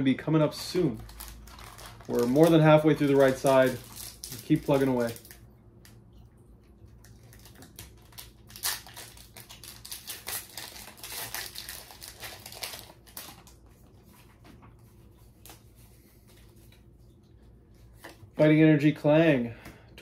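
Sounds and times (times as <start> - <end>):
foil wrapper crinkling: 0.6 - 5.4, 7.0 - 14.3.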